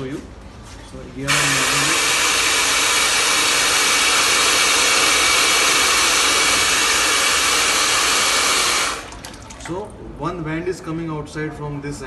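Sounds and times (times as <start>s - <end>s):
bidet water spraying into toilet: 1.3s - 9.8s.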